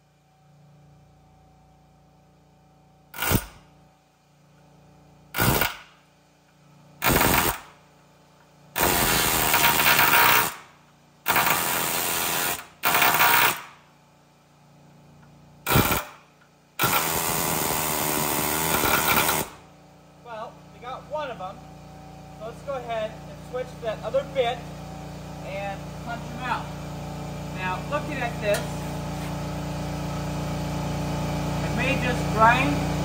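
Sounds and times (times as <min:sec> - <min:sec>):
pneumatic air hammer on metal: 0:03.1 - 0:03.7, 0:05.3 - 0:06.0, 0:07.0 - 0:07.8, 0:08.8 - 0:10.7, 0:11.3 - 0:13.8, 0:15.7 - 0:16.2, 0:16.8 - 0:19.6.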